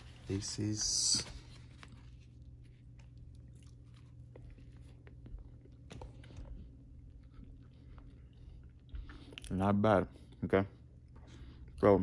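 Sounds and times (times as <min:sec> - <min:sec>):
low room hum: 0:00.0 - 0:12.0
person chewing: 0:01.9 - 0:09.6.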